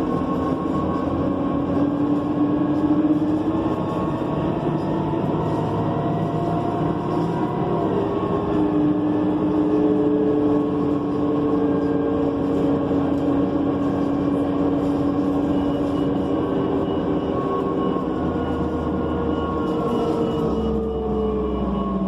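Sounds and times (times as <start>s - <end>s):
bus engine running: 0.0s - 22.0s
drivetrain whine: 0.0s - 22.0s
road noise: 0.0s - 22.0s.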